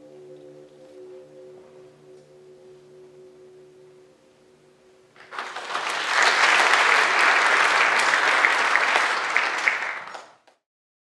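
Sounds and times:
audience applause: 5.2s - 10.5s.

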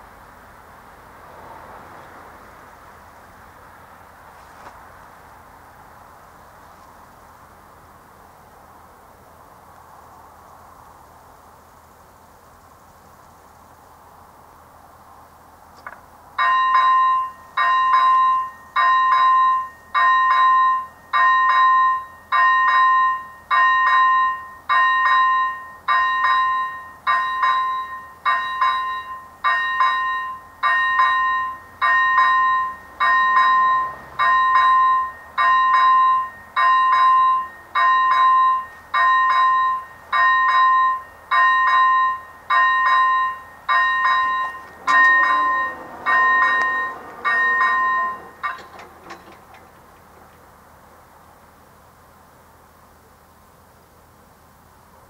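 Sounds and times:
electronic warning bell dinging: 16.4s - 49.4s.

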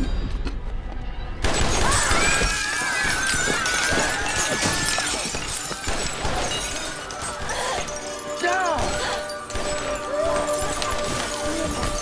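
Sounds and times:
glass shattering and clattering: 1.4s - 12.0s.

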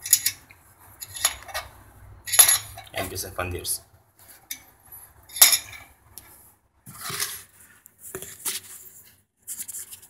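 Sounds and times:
metal tool clinks and scrapes: 0.0s - 1.7s, 2.3s - 3.1s, 5.3s - 5.9s.

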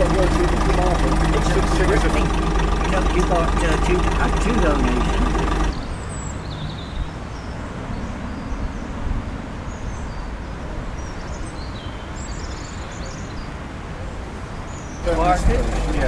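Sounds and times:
steady low rumble: 0.0s - 5.8s
small birds chirping: 0.0s - 7.1s.

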